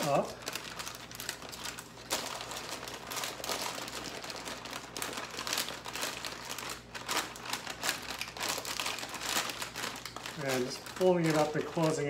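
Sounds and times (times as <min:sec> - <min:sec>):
parchment paper crinkling: 0:00.0 - 0:12.0.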